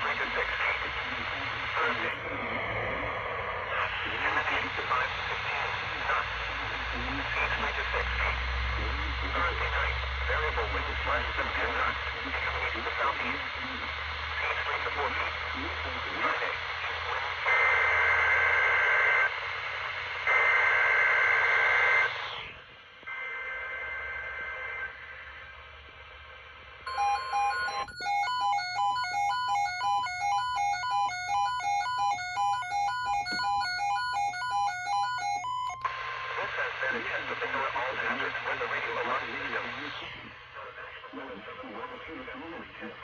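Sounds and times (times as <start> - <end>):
radio hiss: 0.0 - 33.8, 34.8 - 43.0
steady electronic tone: 26.9 - 35.9
two-pitch electronic alert beeping: 26.9 - 35.9.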